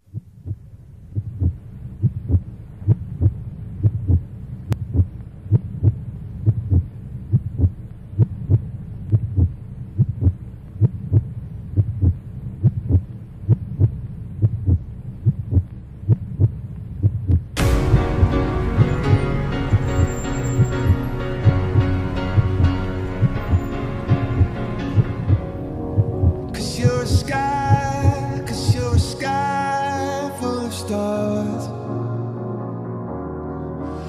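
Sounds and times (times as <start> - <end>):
heartbeat thumps: 0.0 - 29.2
low hum: 0.0 - 34.0
music: 17.6 - 34.0.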